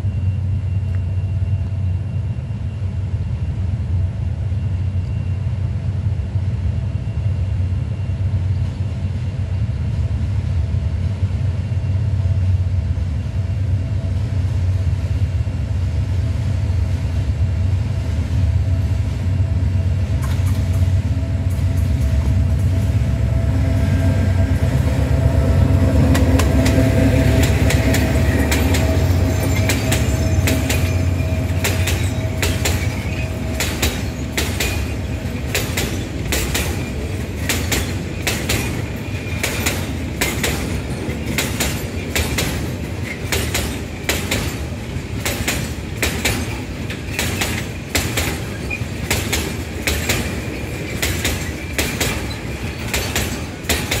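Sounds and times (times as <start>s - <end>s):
locomotive engine drone: 0.0s - 54.0s
train wheels clickety-clack: 18.0s - 54.0s.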